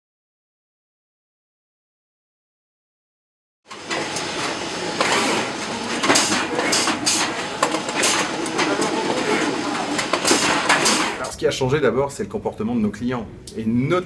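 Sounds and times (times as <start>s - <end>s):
boxes clattering on conveyor: 3.7s - 11.3s
conveyor rumble and whir: 3.7s - 14.0s.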